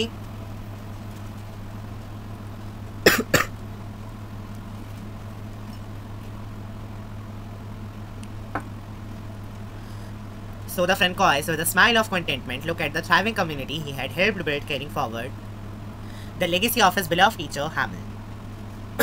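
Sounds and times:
low electrical hum: 0.0 - 19.0
man coughing: 3.0 - 3.5.

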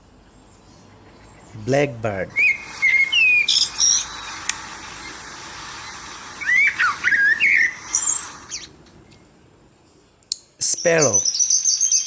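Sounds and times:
background hiss: 0.0 - 12.0
blackbird singing: 2.3 - 8.8, 10.6 - 12.0.

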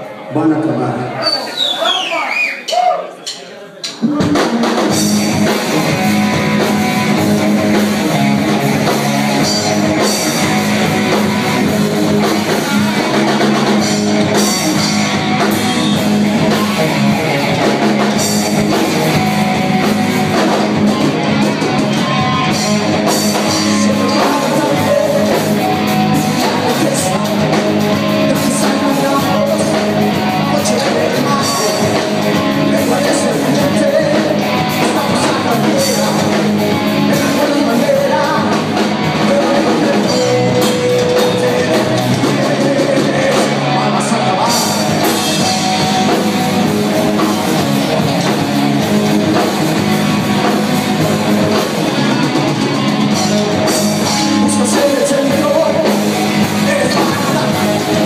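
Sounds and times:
live rock band playing: 3.9 - 58.0.

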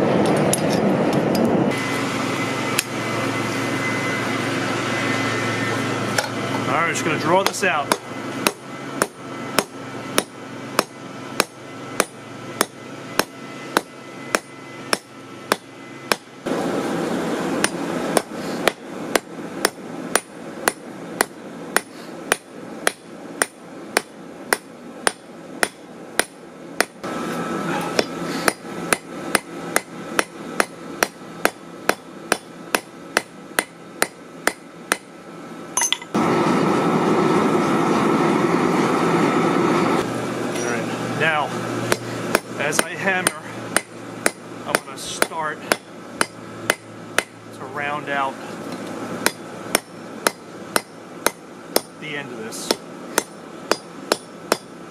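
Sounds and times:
hammer striking metal on anvil: 7.4 - 16.3, 17.6 - 27.0, 27.9 - 35.1, 35.8 - 36.2, 41.9 - 47.4, 49.2 - 52.0, 52.6 - 54.8
forge air blast rushing: 36.2 - 50.3.

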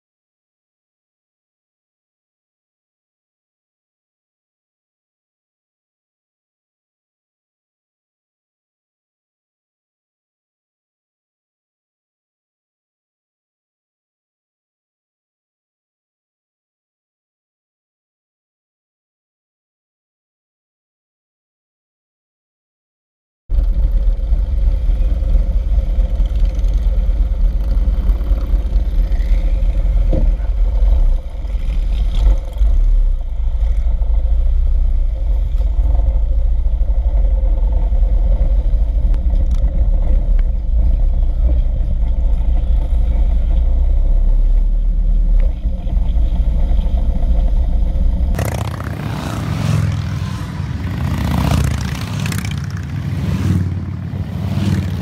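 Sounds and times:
motorcycle engines riding in a pack: 23.5 - 55.0
motorcycles passing by: 23.5 - 55.0.

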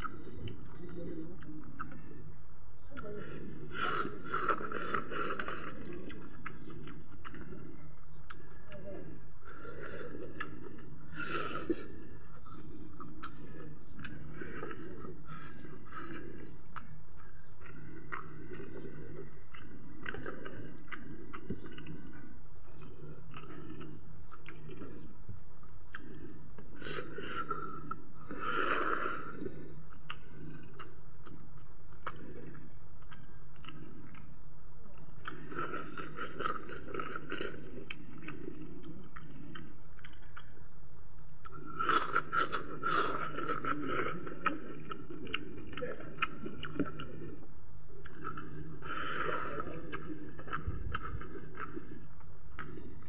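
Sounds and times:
chewing and crunching: 0.0 - 53.0
wet mouth sounds: 3.0 - 40.6.

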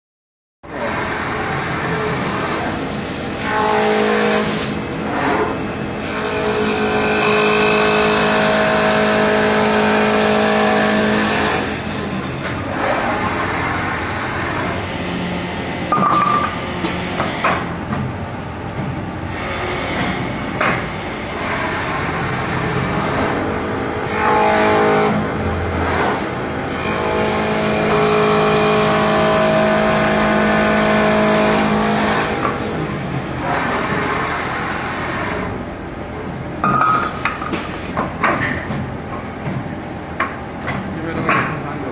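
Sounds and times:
cutter shaving wood: 0.8 - 15.3, 19.3 - 35.6
lathe machine hum: 0.8 - 17.8, 18.4 - 36.1.

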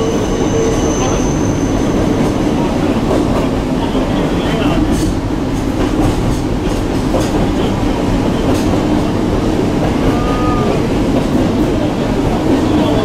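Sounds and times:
faint wheel squeal: 0.0 - 2.2
train wheels rumbling on rail: 0.0 - 13.0.

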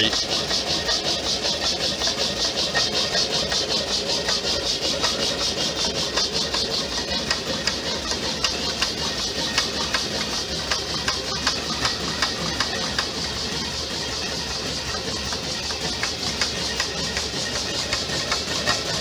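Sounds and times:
stirling engine running: 0.0 - 19.0
sharp ticks: 14.8 - 18.8.

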